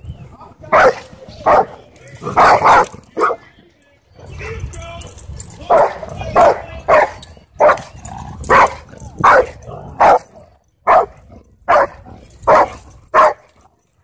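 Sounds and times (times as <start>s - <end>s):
dog barking: 0.7s - 1.7s, 2.4s - 3.4s, 5.7s - 7.9s, 8.5s - 10.3s, 10.9s - 13.5s.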